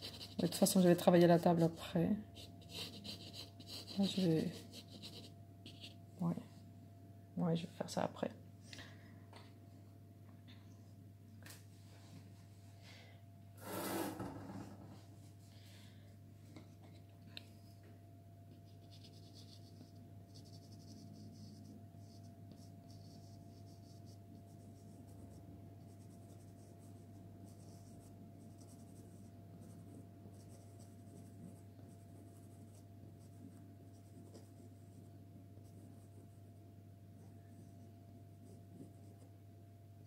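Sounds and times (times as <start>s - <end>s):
low steady hum: 0.0s - 13.6s, 14.6s - 40.0s.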